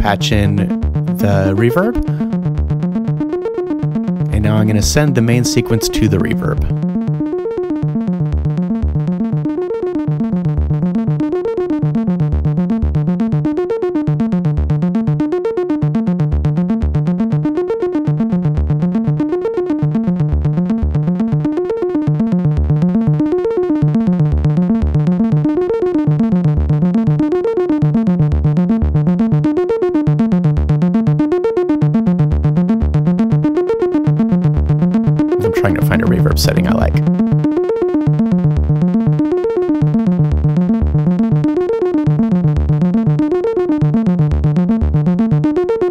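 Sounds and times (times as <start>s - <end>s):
synthesizer melodic pattern: 0.0s - 2.4s, 35.3s - 37.1s.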